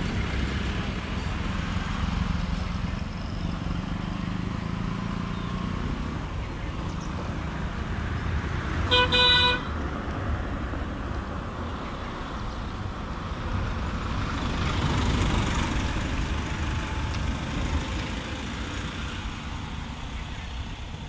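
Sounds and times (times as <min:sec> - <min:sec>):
truck passing close: 0:12.0 - 0:21.0.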